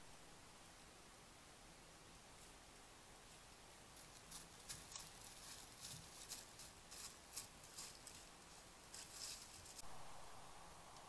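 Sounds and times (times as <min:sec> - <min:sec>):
steady hiss: 0:00.0 - 0:11.0
deer stepping through dry leaves: 0:03.9 - 0:09.8.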